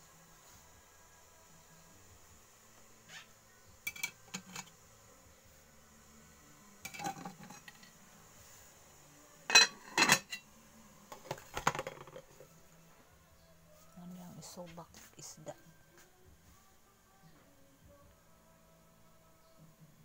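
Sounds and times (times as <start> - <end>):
metal pots and lids clanking: 3.9 - 4.7, 6.8 - 7.8, 9.5 - 10.4, 11.3 - 12.3.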